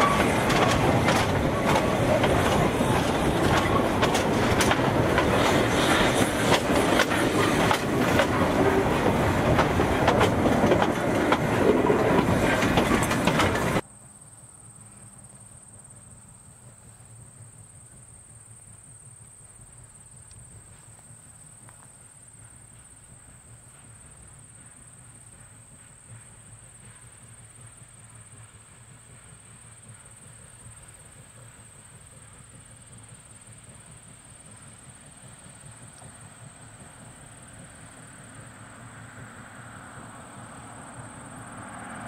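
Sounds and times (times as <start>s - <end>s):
crickets chirring: 0.0s - 28.5s.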